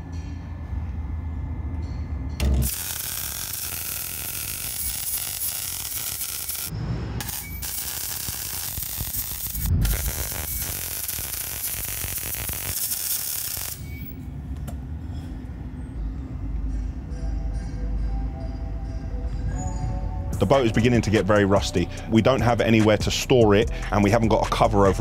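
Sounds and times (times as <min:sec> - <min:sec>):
low hum: 0:00.0 - 0:21.1
welding arc crackling: 0:02.4 - 0:14.1.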